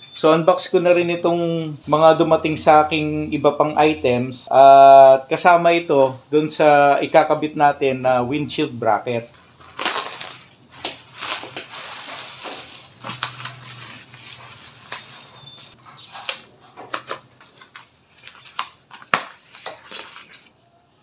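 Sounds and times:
plastic crinkling and rustling: 9.2 - 20.6
cardboard packaging handled: 9.3 - 20.3.

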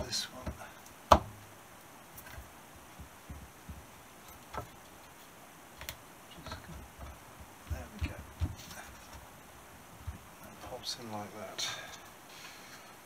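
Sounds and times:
sharp knock on plastic: 1.1 - 1.4.

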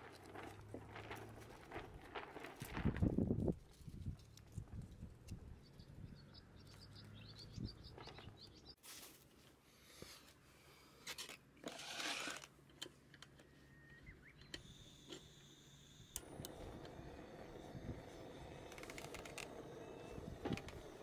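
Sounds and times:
faint bird chirps: 13.5 - 14.9.

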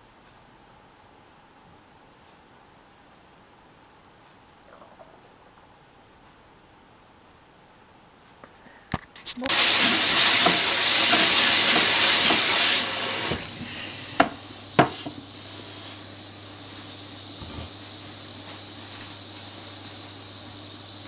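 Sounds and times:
spray tap running water: 9.3 - 21.0.

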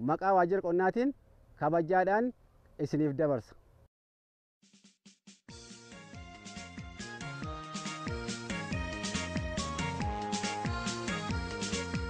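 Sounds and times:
background music: 5.5 - 12.0.

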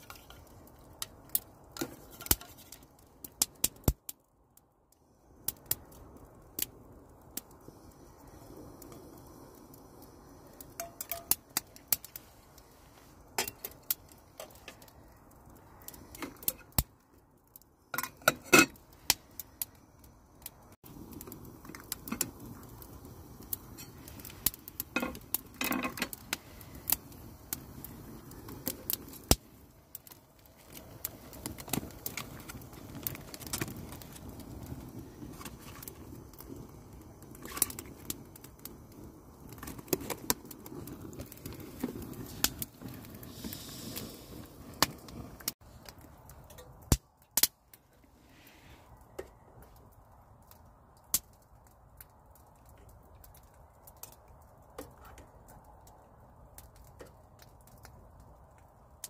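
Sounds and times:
steaming pot: 7.6 - 14.8, 17.9 - 19.2, 20.7 - 45.6.

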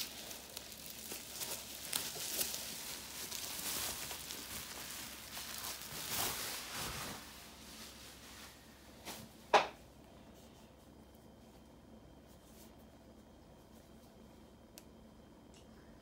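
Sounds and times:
bubble wrap crinkling: 0.0 - 9.4.

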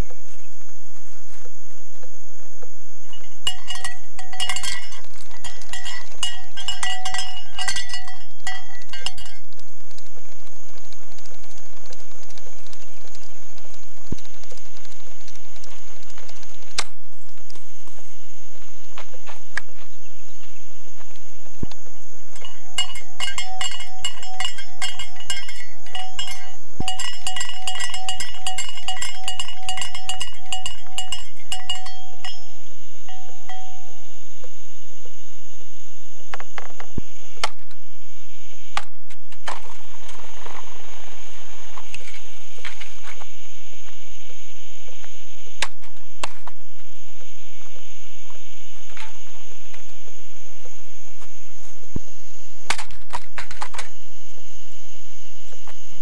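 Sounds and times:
cowbell clanking rapidly: 3.1 - 9.4, 22.4 - 33.9.

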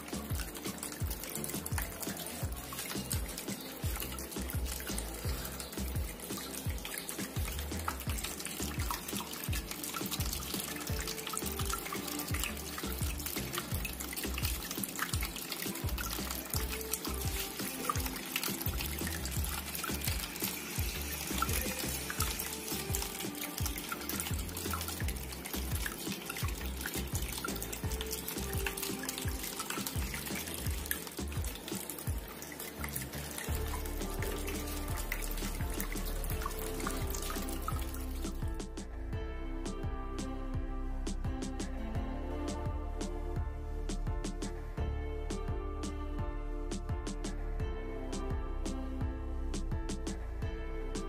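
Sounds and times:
fountain water trickling: 0.0 - 38.6
water dripping: 0.0 - 39.0
background music: 0.0 - 51.0.

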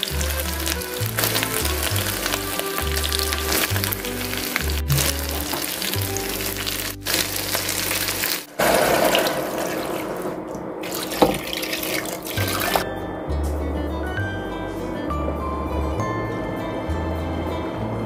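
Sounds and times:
background music with bass line: 0.0 - 8.2, 12.4 - 18.0
pork sizzling in a hot pot: 0.0 - 12.8
sauce splashing into pot: 0.0 - 12.8.

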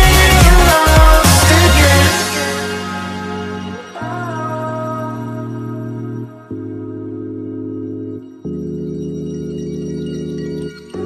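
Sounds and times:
slow sustained chords music: 1.6 - 11.0.

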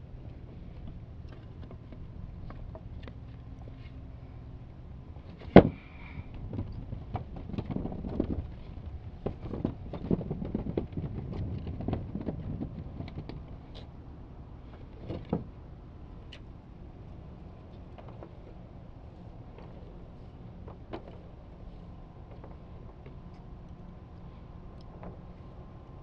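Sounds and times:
knocks on wooden dock boards: 5.4 - 5.8.

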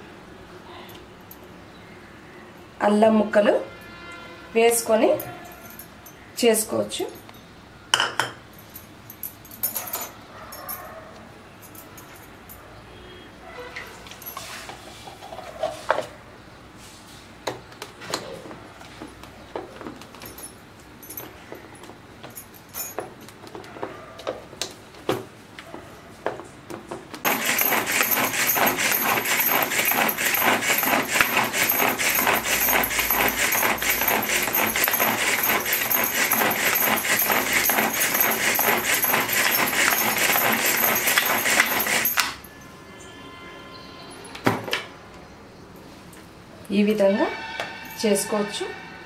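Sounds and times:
pull-cord chopper whirring: 27.3 - 42.4.

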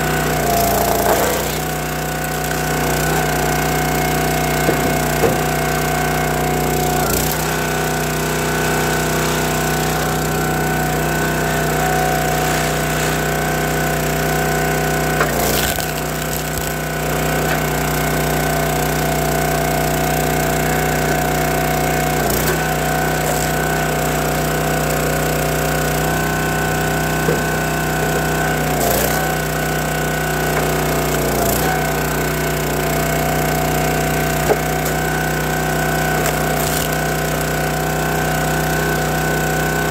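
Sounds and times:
small gas engine running: 0.0 - 39.9
logs cracking as they split: 15.2 - 16.9, 36.2 - 37.0.

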